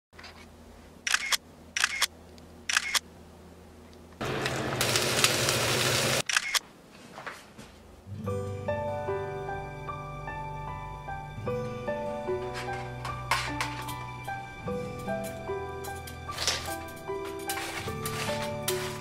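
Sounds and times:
camera shutter clicking: 0:01.1 - 0:02.1, 0:02.7 - 0:03.0, 0:06.2 - 0:06.6
egg sizzling in hot oil: 0:04.7 - 0:06.2
soft piano music: 0:08.1 - 0:19.0.

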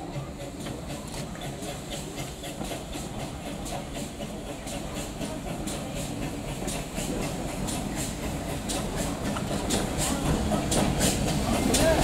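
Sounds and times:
hissing steam: 0:00.0 - 0:12.0
steam train rumble: 0:00.0 - 0:12.0
wheels clicking on rails: 0:00.0 - 0:12.0.

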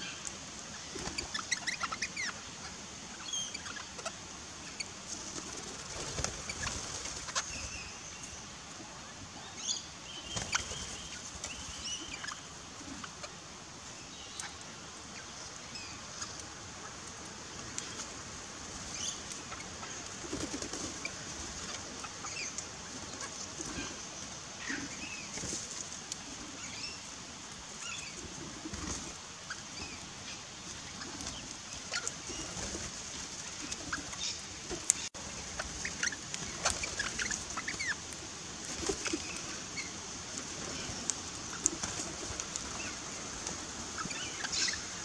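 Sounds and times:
steady high hiss: 0:00.0 - 0:45.0
wings fluttering: 0:00.8 - 0:02.1, 0:05.0 - 0:08.4, 0:10.2 - 0:13.3, 0:17.6 - 0:26.7, 0:27.8 - 0:45.0.

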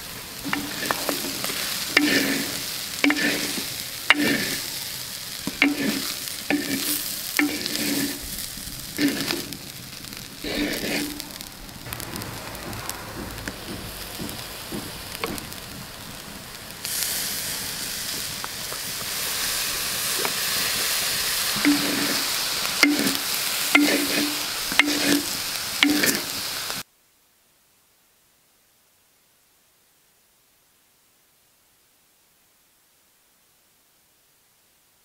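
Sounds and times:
rice sizzling in a pot: 0:00.0 - 0:26.9
wooden spatula scraping a pot: 0:00.4 - 0:04.8, 0:05.4 - 0:09.7, 0:10.4 - 0:14.1, 0:21.6 - 0:26.3.

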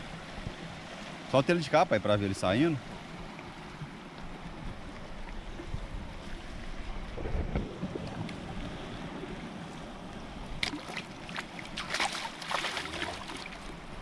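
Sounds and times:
moving water: 0:00.0 - 0:14.0
fish splashing: 0:10.6 - 0:13.7.

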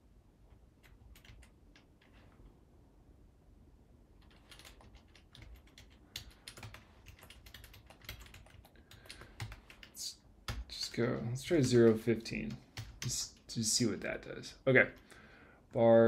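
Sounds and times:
typing on computer keyboard: 0:00.8 - 0:02.2, 0:04.2 - 0:10.7, 0:11.5 - 0:13.4.

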